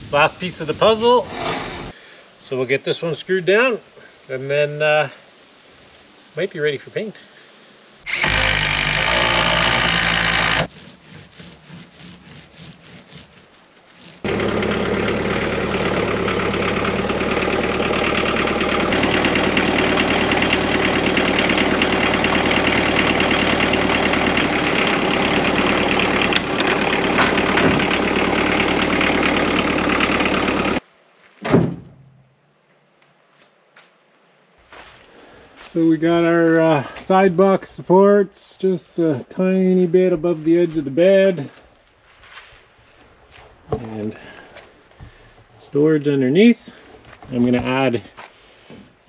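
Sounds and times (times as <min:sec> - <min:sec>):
cordless drill driving screw into wood: 0:08.1 - 0:10.7
tractor diesel engine running: 0:08.1 - 0:10.7, 0:14.1 - 0:30.8
short thump: 0:31.4 - 0:32.2.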